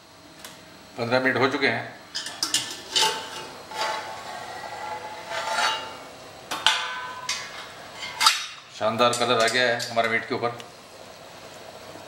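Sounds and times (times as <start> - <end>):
metal lid clinks and scrapes: 2.2 - 4.1.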